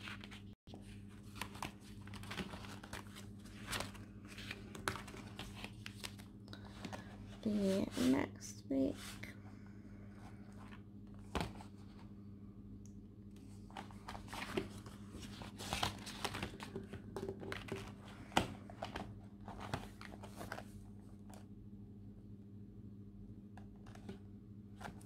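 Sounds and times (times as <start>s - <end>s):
paper and plastic rustling: 0.0s - 8.1s, 13.5s - 21.4s
faint steady hum: 0.0s - 25.0s.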